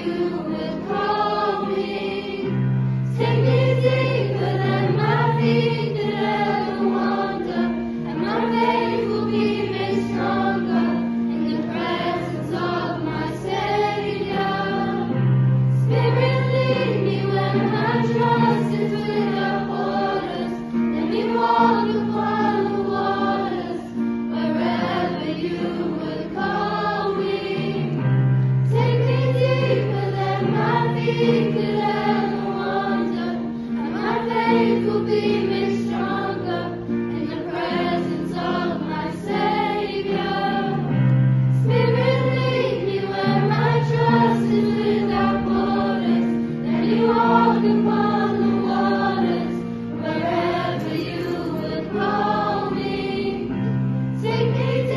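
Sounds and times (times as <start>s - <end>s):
choir singing: 0.0s - 54.9s.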